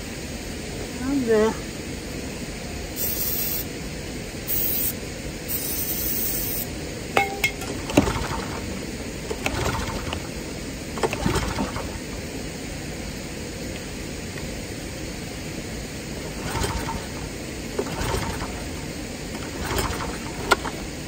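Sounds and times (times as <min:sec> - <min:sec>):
aerosol can spraying: 0:03.0 - 0:03.7, 0:04.5 - 0:06.7
recoil starter pull rattling: 0:07.2 - 0:12.2, 0:16.2 - 0:20.9.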